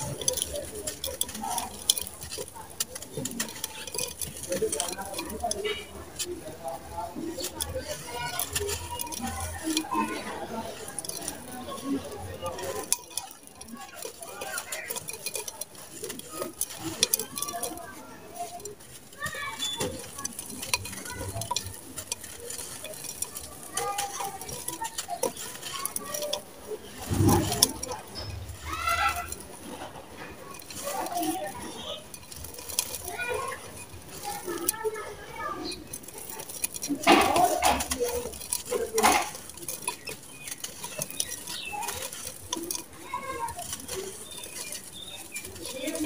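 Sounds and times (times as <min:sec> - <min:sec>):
grains falling into clay pot: 0:00.0 - 0:46.0
mud lumps crumbling crackles: 0:00.0 - 0:46.0.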